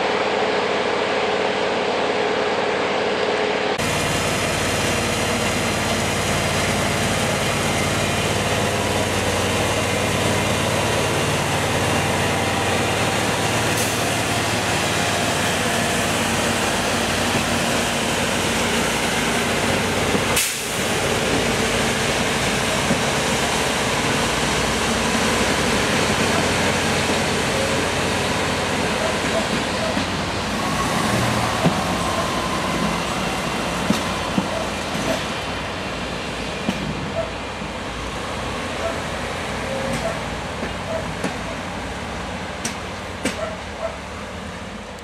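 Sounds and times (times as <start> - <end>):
diesel engine running: 3.8 - 35.8.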